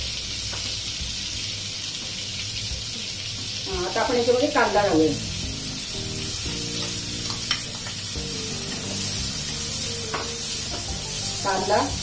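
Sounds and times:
onions sizzling in hot oil: 0:00.0 - 0:12.0
spatula knocking against pan: 0:10.1 - 0:11.0.

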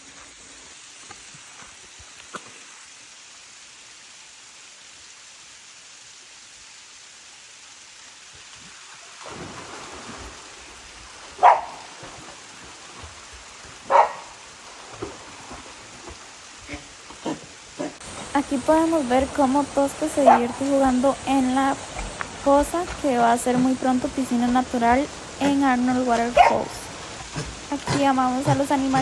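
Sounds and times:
water hissing: 0:00.0 - 0:29.0
water splashing: 0:07.8 - 0:29.0
dog barking: 0:11.4 - 0:11.9, 0:13.9 - 0:14.4, 0:20.2 - 0:20.6, 0:26.3 - 0:26.8.

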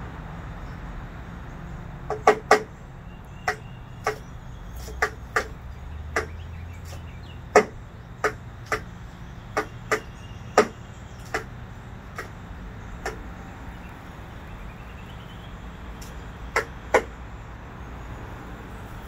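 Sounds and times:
woodpecker tapping on glass: 0:02.1 - 0:02.8, 0:03.4 - 0:12.4, 0:13.0 - 0:13.3, 0:16.0 - 0:17.2.

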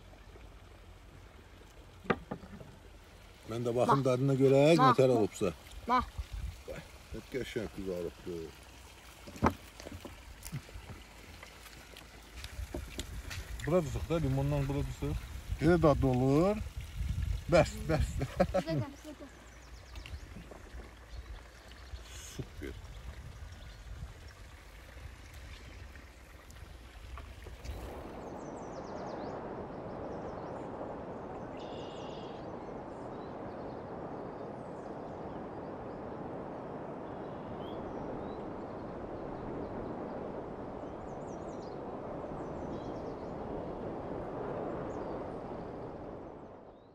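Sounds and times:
stream flowing: 0:00.0 - 0:46.4
small birds chirping: 0:17.6 - 0:24.0
low rumble: 0:26.6 - 0:46.8.

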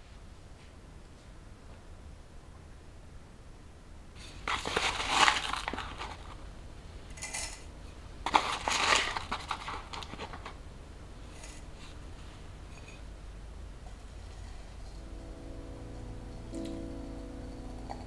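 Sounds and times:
dry tea leaves rustling: 0:04.4 - 0:06.4, 0:08.3 - 0:10.5.

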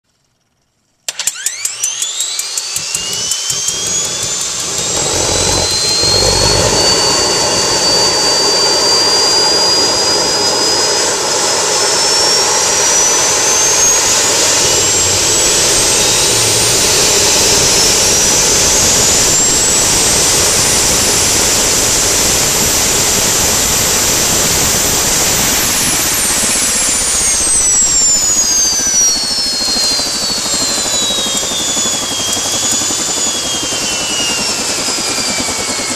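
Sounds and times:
turbine whine: 0:00.1 - 0:35.9
turbine engine starter ticking: 0:01.1 - 0:09.1
low rumble of ignition: 0:02.6 - 0:11.4.

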